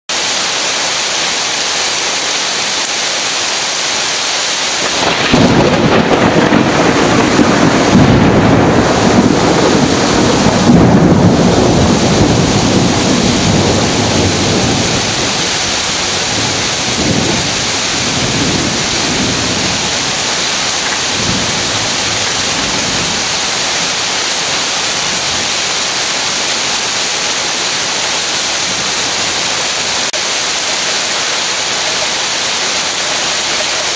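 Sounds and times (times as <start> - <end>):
heavy rain pouring: 0.1 - 33.9
rolling thunder: 4.8 - 24.2.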